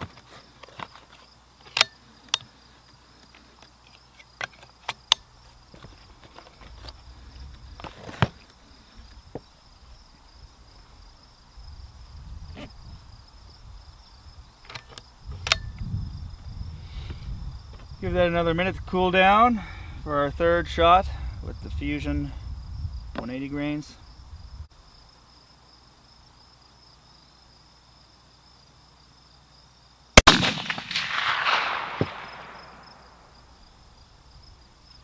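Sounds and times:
clicks of cartridges being handled: 0.0 - 2.5
crickets chirring: 0.0 - 35.0.

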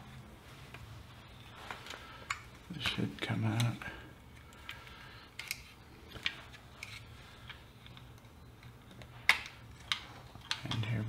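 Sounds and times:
small plastic and metal parts clicking: 3.5 - 11.0.

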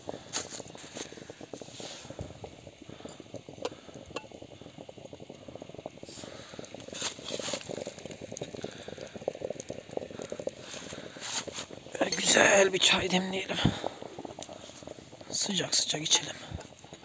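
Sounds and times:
water boiling and bubbling: 0.0 - 17.0.

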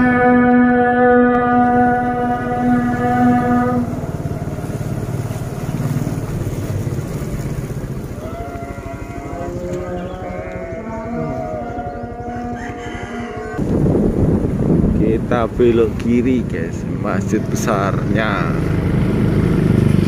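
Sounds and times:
wavering pitched sound: 0.0 - 6.3
small motorcycle engine running: 1.3 - 13.6, 17.0 - 20.0.

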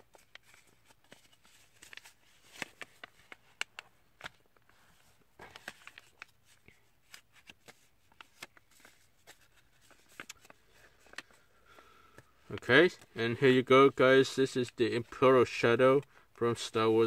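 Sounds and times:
paper rustling and crackling: 0.0 - 13.1.

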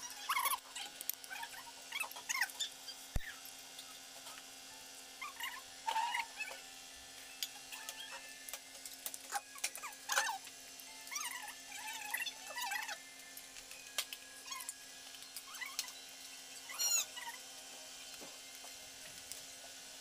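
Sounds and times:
short high-pitched squeaks: 15.4 - 16.0, 16.6 - 17.4.

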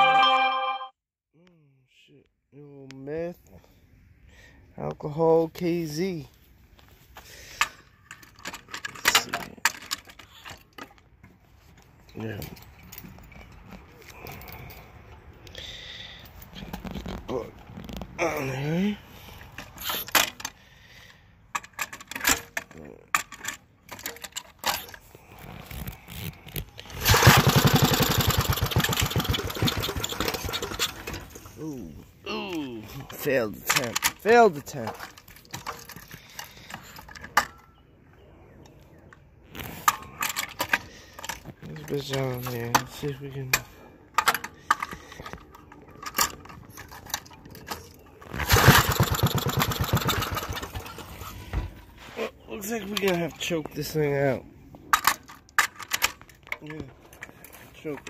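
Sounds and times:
small engine starting: 26.8 - 31.4, 48.3 - 51.4.

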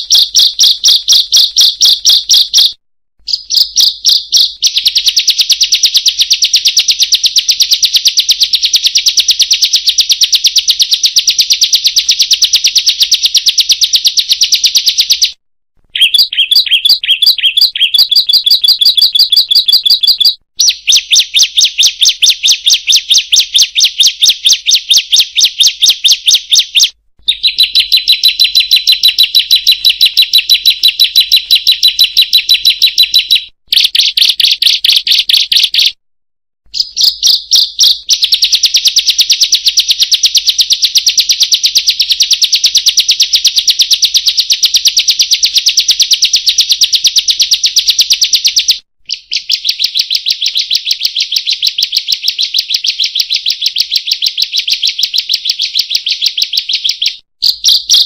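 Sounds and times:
bird chirping rapidly: 0.0 - 36.0, 36.7 - 58.0.

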